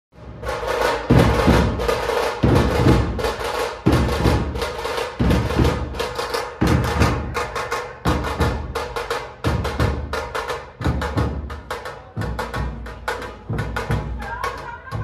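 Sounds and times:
drum percussion: 0:00.1 - 0:15.0.

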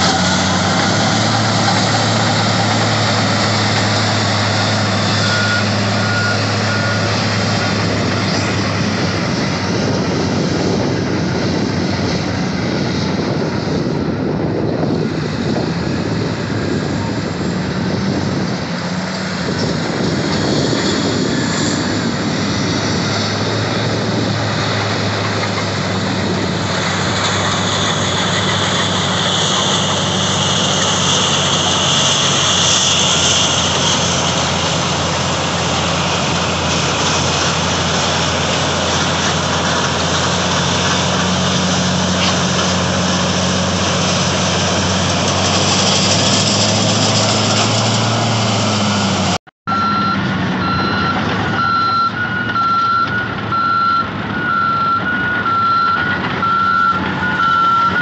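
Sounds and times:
heavy diesel engines droning: 0:00.0 - 0:58.0
backup alarm beeping: 0:49.7 - 0:58.0.

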